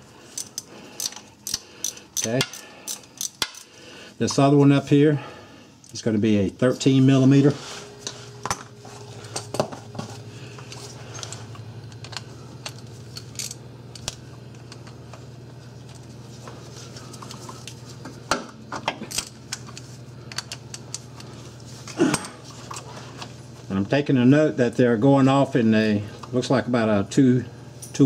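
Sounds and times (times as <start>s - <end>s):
steady low hum: 0.0s - 28.0s
tools clicking on terminals: 0.3s - 3.7s, 19.1s - 21.3s.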